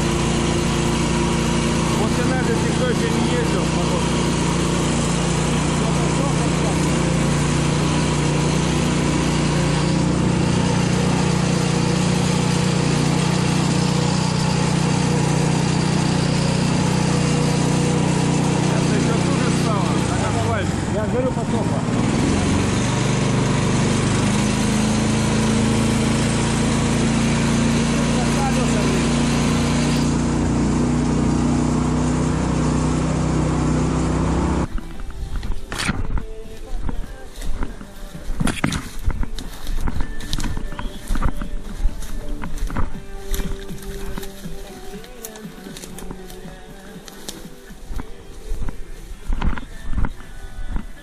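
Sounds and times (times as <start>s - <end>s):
vehicle engine running under load: 0.0s - 35.1s.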